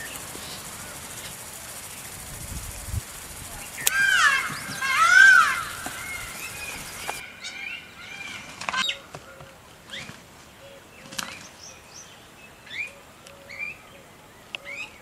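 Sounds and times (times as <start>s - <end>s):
small birds chirping: 0.0s - 15.0s
sharp clicks: 3.8s - 4.7s.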